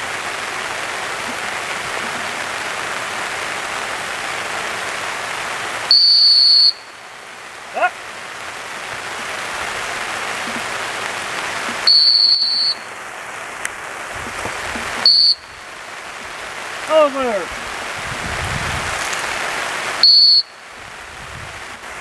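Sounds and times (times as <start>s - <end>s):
steady rain hiss: 0.0s - 22.0s
dog-training whistle blasts: 5.9s - 6.9s, 11.8s - 12.9s, 15.0s - 15.6s, 20.0s - 20.6s.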